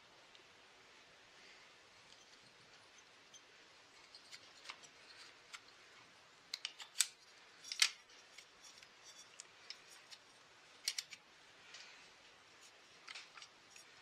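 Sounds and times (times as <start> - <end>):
pliers clicking on wire: 6.5 - 10.2, 10.8 - 11.2.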